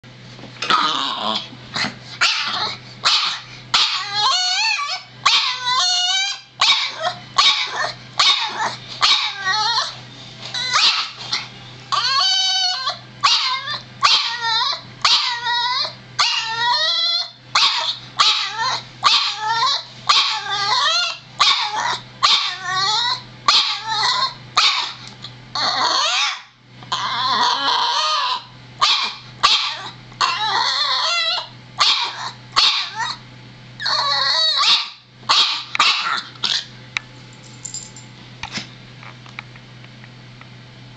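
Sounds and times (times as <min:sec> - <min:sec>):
dog barking: 0:02.2 - 0:04.0, 0:06.6 - 0:09.4, 0:10.8 - 0:11.2, 0:17.6 - 0:19.4, 0:24.6 - 0:25.0, 0:28.8 - 0:29.9, 0:31.8 - 0:33.1, 0:34.6 - 0:36.2.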